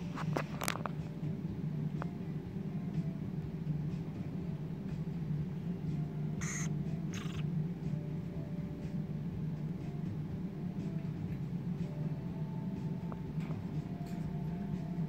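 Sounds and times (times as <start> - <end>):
parrot chick squawks: 6.4 - 7.4.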